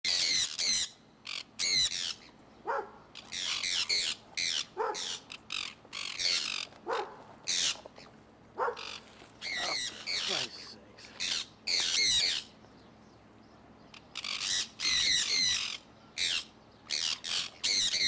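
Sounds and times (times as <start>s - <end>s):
parrots screeching: 0.1s - 2.3s, 3.2s - 7.9s, 8.6s - 12.5s, 13.9s - 18.0s.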